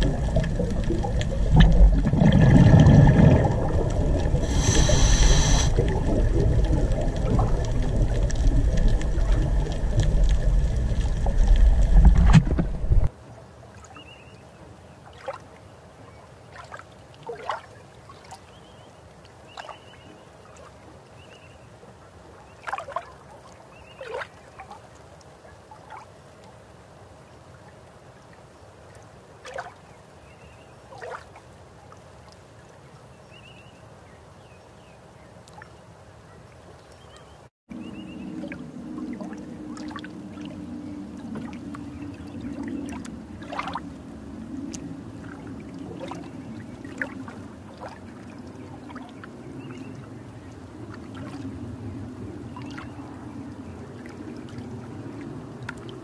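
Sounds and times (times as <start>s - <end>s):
quiet hiss: 0.0s - 13.1s
underwater rumble of moving water: 0.0s - 13.1s, 37.1s - 56.0s
faint clicks: 3.8s - 13.1s.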